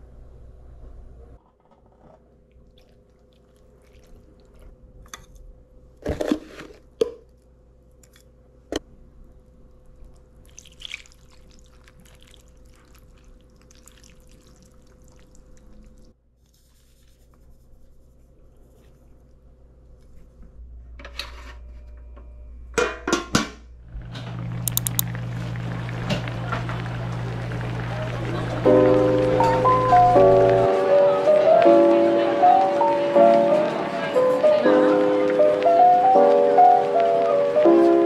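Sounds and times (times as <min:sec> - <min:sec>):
sauce pouring into a pan: 0:10.5 - 0:15.7.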